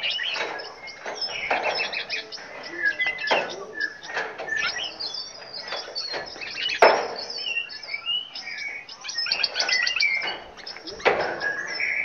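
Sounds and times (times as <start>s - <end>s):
songbirds chirping and calling: 0.0s - 12.0s.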